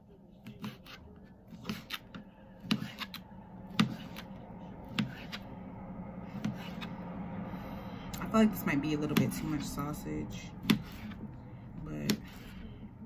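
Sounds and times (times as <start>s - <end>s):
knife chopping sausage on plate: 0.4s - 4.3s, 4.9s - 5.4s, 10.6s - 11.2s.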